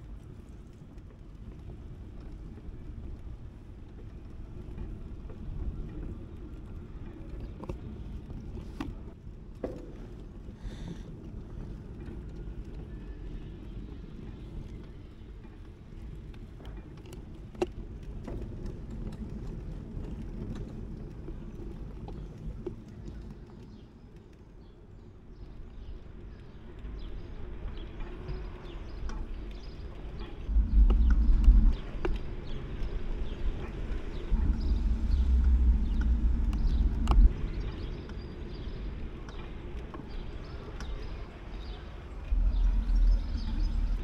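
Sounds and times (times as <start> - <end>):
wind on microphone: 28.4 - 40.4, 42.2 - 44.0.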